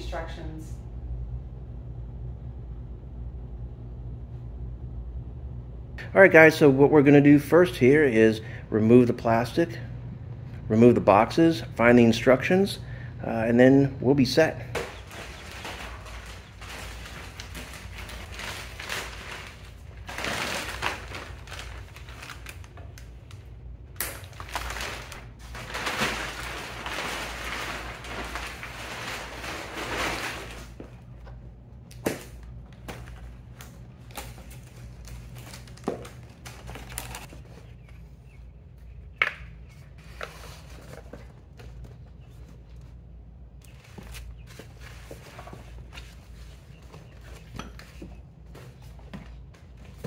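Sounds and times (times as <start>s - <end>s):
plastic sheet crinkling and rustling: 14.7s - 31.2s, 32.1s - 37.6s.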